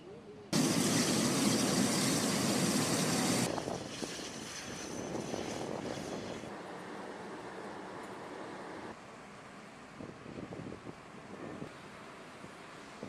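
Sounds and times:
flame and hose spray rushing: 0.6s - 6.5s.

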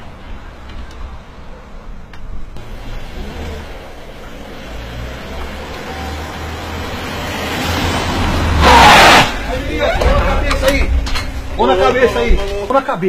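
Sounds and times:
car engine approaching: 2.4s - 12.6s.

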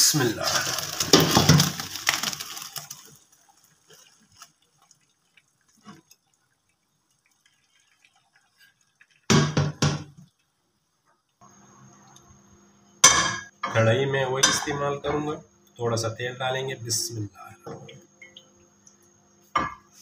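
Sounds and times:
water pouring into a colander: 0.0s - 9.4s
faint dripping: 2.4s - 9.3s.

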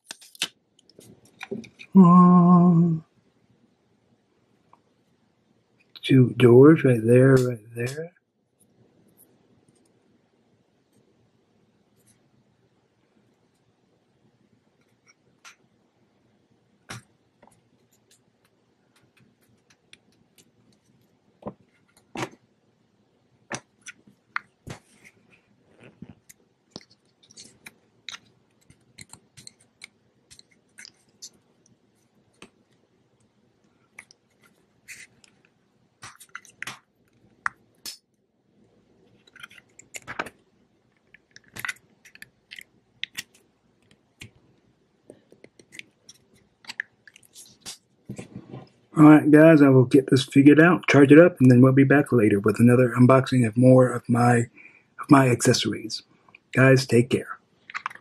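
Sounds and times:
small clicks and taps: 25.8s - 32.8s, 41.0s - 44.4s.

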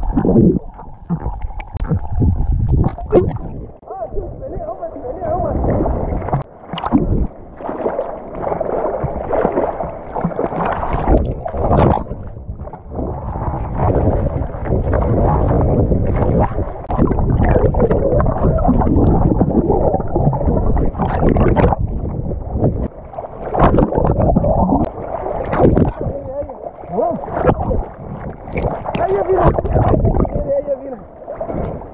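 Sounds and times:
sea water sloshing and gurgling: 0.0s - 31.9s
swimmer's splashes: 5.4s - 21.8s.

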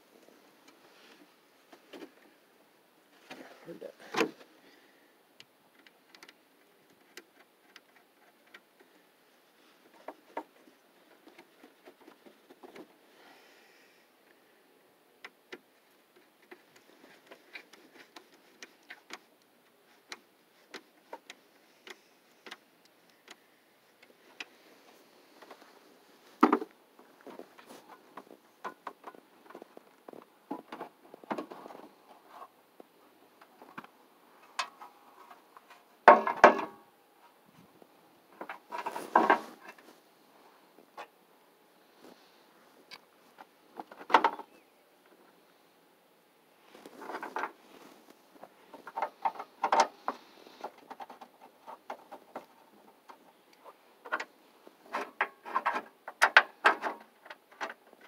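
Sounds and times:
small clicks and knocks: 5.4s - 9.0s, 15.2s - 24.6s, 26.4s - 36.8s, 42.9s - 45.3s, 46.8s - 58.0s.

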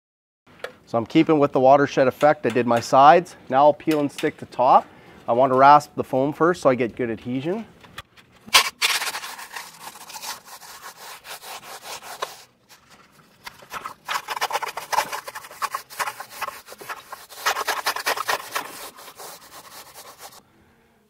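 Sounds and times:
rasp scraping foam: 8.5s - 20.4s.

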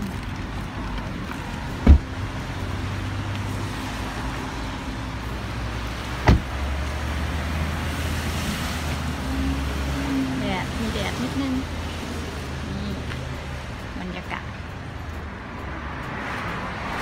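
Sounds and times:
street traffic rumble: 0.0s - 17.0s
car door thumps: 1.8s - 2.1s, 6.2s - 6.5s.

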